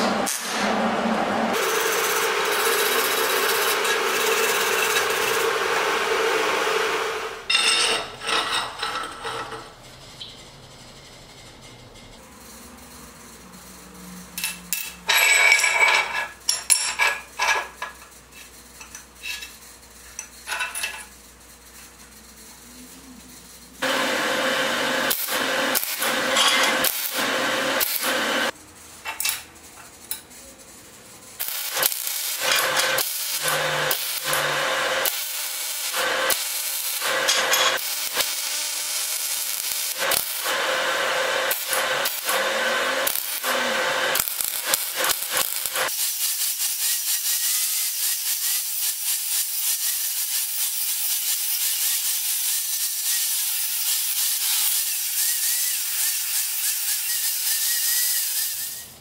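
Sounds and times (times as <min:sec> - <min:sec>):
welder crackling bursts: 0:01.5 - 0:07.5, 0:23.8 - 0:28.6, 0:31.4 - 0:58.9
angle grinder cutting steel: 0:01.5 - 0:09.7, 0:23.8 - 0:28.6, 0:31.4 - 0:59.0.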